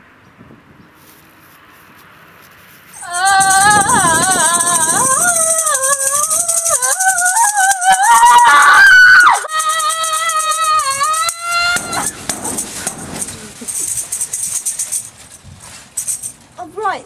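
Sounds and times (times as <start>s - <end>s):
shaker rattling: 2.5s - 16.6s
high wavering tone: 3.0s - 13.6s.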